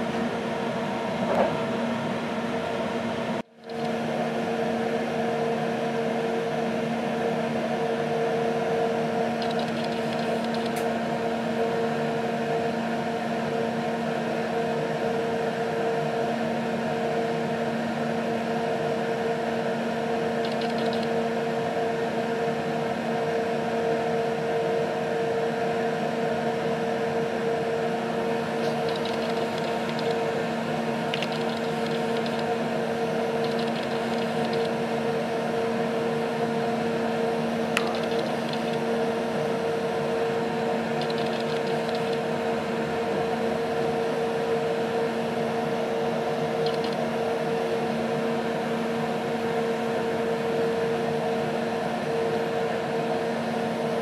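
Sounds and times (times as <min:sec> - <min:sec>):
train carriage hum: 0:27.6 - 0:36.2
single click: 0:46.6 - 0:47.0.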